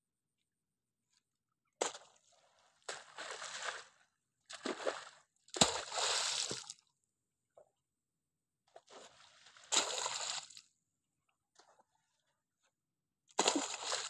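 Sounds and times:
shovel in wet mud: 2.9s - 6.8s, 9.1s - 10.6s, 13.3s - 14.0s.

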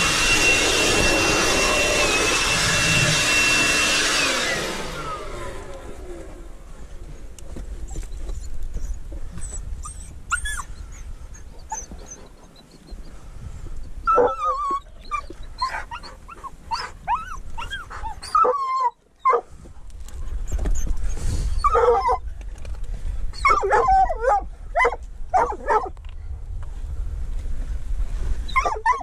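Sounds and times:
dog whining and yipping: 7.9s - 13.1s, 14.0s - 19.4s, 20.5s - 22.3s, 23.3s - 25.9s, 28.5s - 29.0s.

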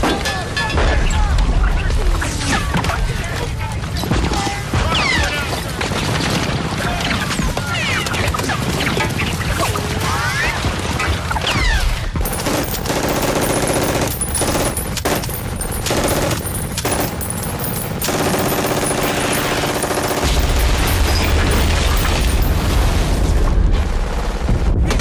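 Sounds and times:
machine gun firing bursts: 12.2s - 22.8s.

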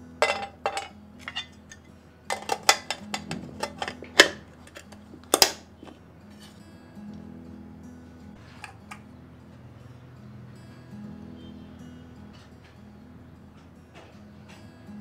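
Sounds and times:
soft background music: 0.0s - 15.0s
metal lunch box clicks and clatter: 2.3s - 5.6s.

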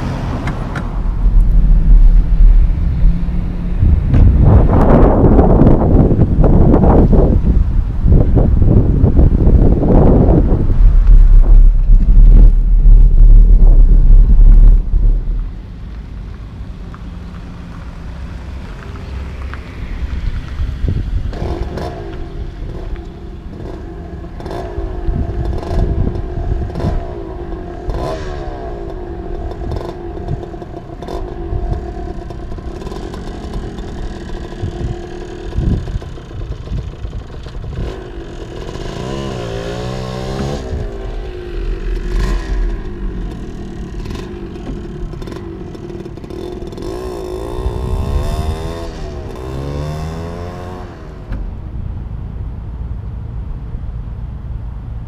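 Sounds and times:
dirt bike engine revving: 37.6s - 50.9s.

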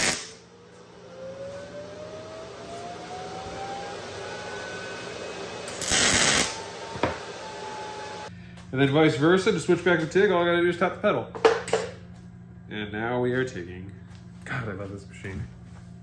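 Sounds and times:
welding arc: 0.0s - 0.5s, 5.7s - 6.7s
low steady hum: 0.0s - 16.0s.

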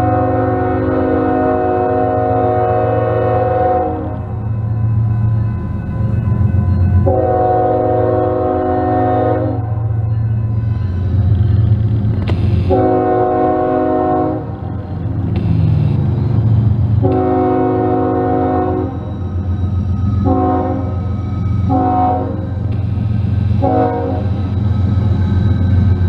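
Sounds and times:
locomotive horn blasts: 0.0s - 4.2s, 7.0s - 9.8s, 12.4s - 14.6s, 17.0s - 19.0s, 20.2s - 21.1s, 21.7s - 22.6s, 23.5s - 24.5s
locomotive diesel engine rumble: 0.0s - 26.0s.

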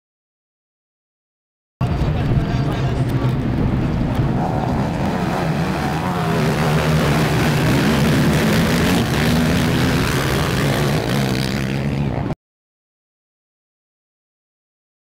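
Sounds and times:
quad engines running hard: 1.8s - 12.4s.

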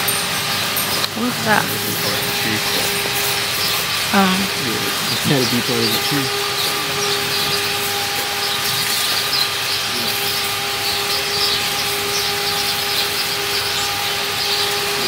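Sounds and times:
steady mechanical hum: 0.0s - 15.0s
faint high chirps: 4.4s - 15.0s.

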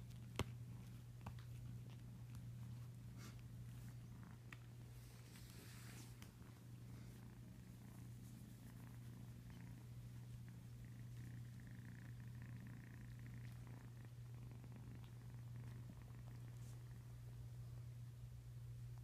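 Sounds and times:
kitten purring: 0.0s - 19.0s.

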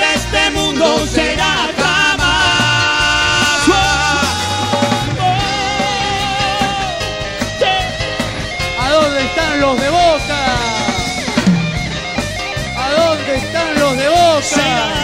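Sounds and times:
live band music: 0.0s - 15.0s.

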